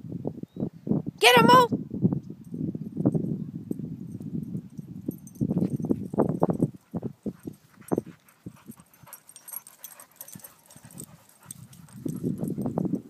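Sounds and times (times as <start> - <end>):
dogs play-wrestling noises: 5.3 - 13.0.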